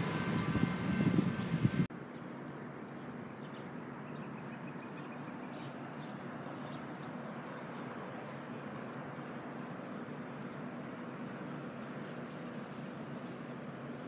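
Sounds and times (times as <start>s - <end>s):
high wheel squeal: 0.0s - 1.9s
outdoor hiss: 0.0s - 1.9s.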